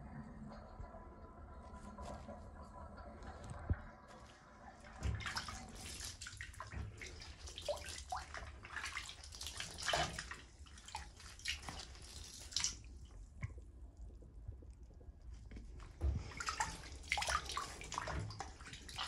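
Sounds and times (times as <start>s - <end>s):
bathwater splashing and dripping: 2.9s - 13.8s, 15.5s - 19.0s.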